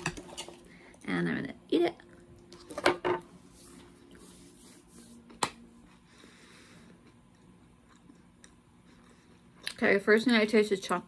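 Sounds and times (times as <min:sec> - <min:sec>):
faint chewing: 0:06.8 - 0:09.9.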